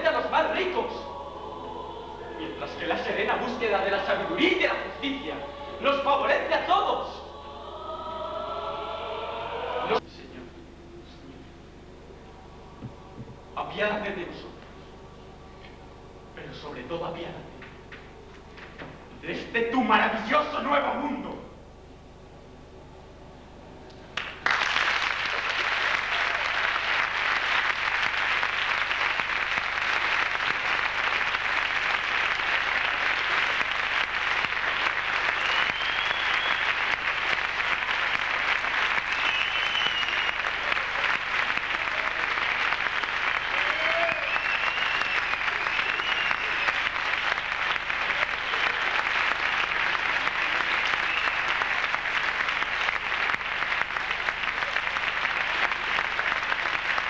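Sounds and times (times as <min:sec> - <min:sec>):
audience applauding: 0:24.2 - 0:57.0.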